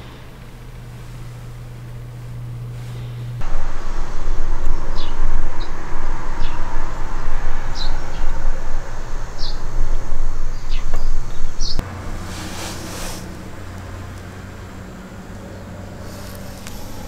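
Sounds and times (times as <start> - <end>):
low hum: 0.0 - 17.0
wind buffeting microphone: 3.3 - 12.3
bird chirping: 3.4 - 11.8
brief hiss: 12.1 - 13.8.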